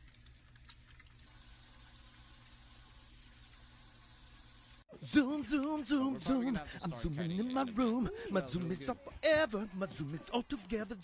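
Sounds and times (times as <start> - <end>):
water running from hand shower: 0.7 - 4.8.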